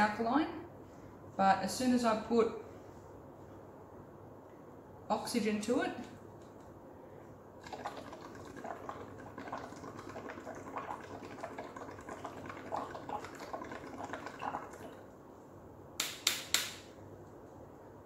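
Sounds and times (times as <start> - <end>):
sharp click: 16.0 - 16.9.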